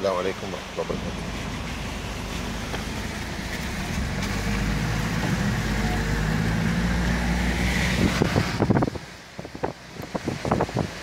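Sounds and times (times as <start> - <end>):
car engine and road drone: 0.0 - 11.0.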